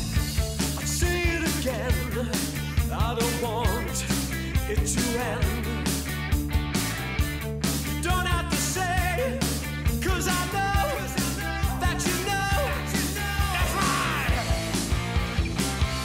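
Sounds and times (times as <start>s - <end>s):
rock song with singer: 0.0s - 16.0s
steady drum beat: 0.0s - 16.0s.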